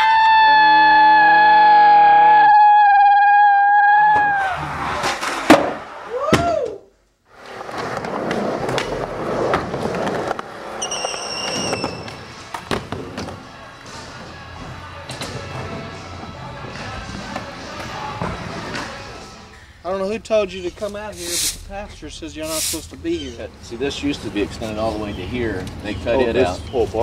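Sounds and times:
skateboard tail pops and landings: 0:05.0 - 0:06.6
skateboard wheels rolling on wood: 0:07.3 - 0:19.3
skateboard wheel squeal: 0:10.7 - 0:12.4.

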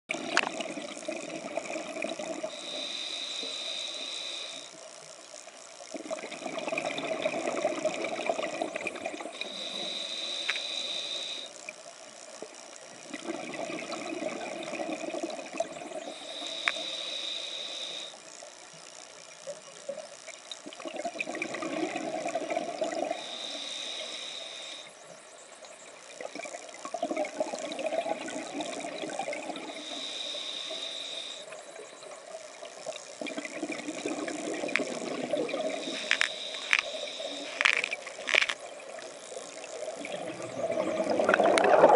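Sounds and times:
regulator hissing inhale: 0:02.4 - 0:04.8, 0:09.3 - 0:11.6, 0:15.9 - 0:18.2, 0:22.8 - 0:25.2, 0:29.6 - 0:31.7, 0:34.4 - 0:38.6
exhaled bubbles rushing: 0:20.8 - 0:23.2, 0:39.8 - 0:41.9.

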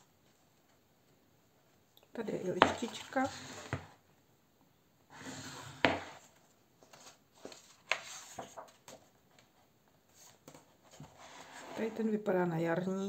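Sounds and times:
paper pages turning: 0:06.2 - 0:09.5.

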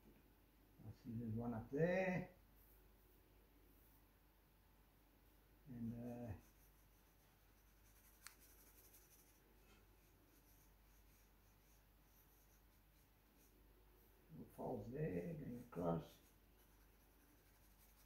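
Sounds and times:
pencil scratching on paper: 0:05.8 - 0:13.6, 0:14.6 - 0:18.0.

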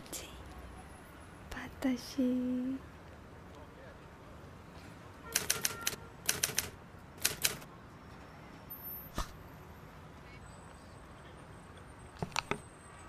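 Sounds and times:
sharp clicks: 0:05.4 - 0:07.7.

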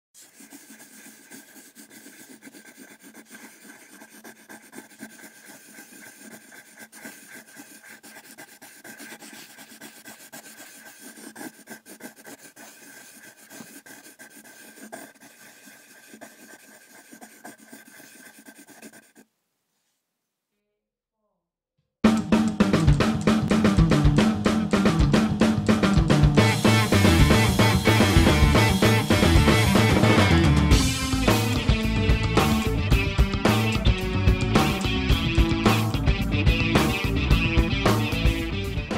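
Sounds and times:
pencil scratching on paper: 0:00.2 - 0:19.3, 0:32.4 - 0:36.0.

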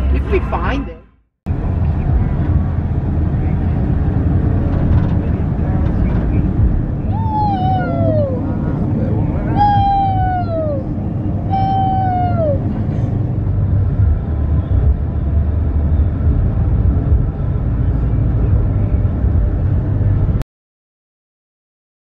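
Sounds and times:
road noise inside car: 0:00.0 - 0:20.4
drawn-out falling call: 0:11.5 - 0:12.6.

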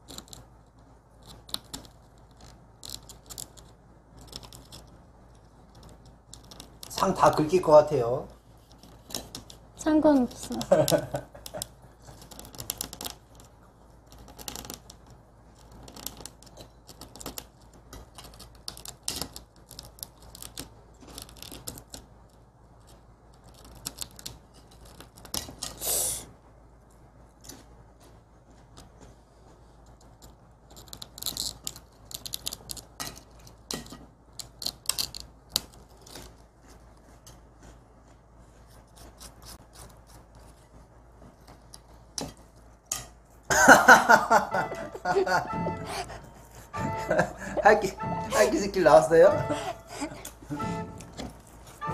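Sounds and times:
tool scratching candy: 0:00.0 - 0:26.2, 0:30.0 - 0:40.8.

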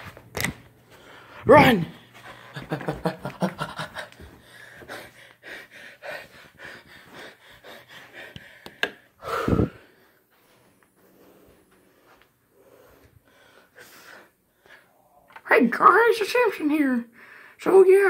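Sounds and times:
footsteps on carpeted stairs: 0:00.0 - 0:13.2
person panting hard: 0:00.9 - 0:02.8, 0:03.6 - 0:15.0
loud voiced exhale: 0:09.2 - 0:09.8.

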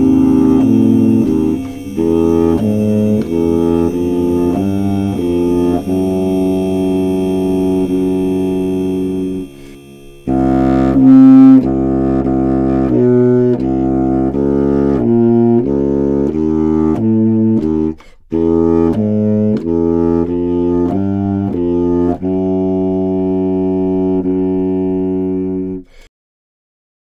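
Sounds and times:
low electronic tones: 0:00.0 - 0:17.8.

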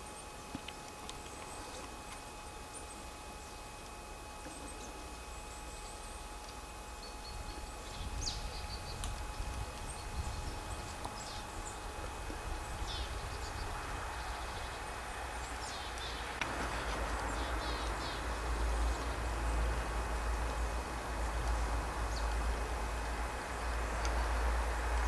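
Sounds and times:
small birds chirping: 0:00.0 - 0:03.7, 0:04.4 - 0:24.9
steady low rumble: 0:07.1 - 0:25.0.

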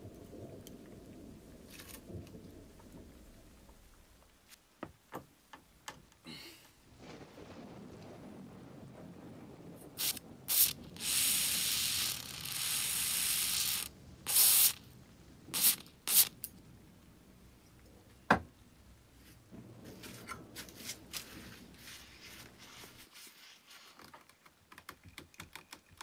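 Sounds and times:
aerosol spray can hissing: 0:10.0 - 0:14.8, 0:15.6 - 0:16.4.

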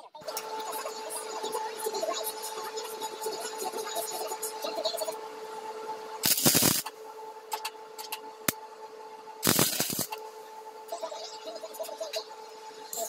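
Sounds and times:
steady hum: 0:00.2 - 0:13.0
welding arc crackling: 0:06.2 - 0:06.9, 0:09.4 - 0:10.2.

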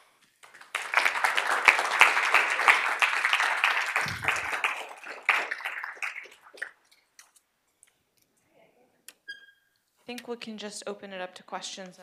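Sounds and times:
audience applauding: 0:00.4 - 0:06.8.

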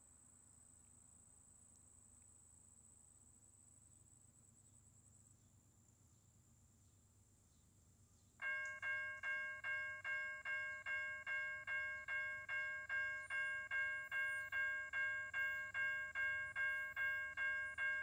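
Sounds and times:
railroad crossing bell ringing: 0:08.4 - 0:18.0.

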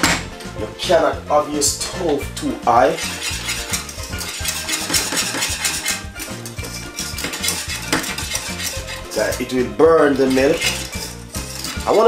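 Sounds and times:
whisk clinking and scraping pot: 0:02.6 - 0:12.0.

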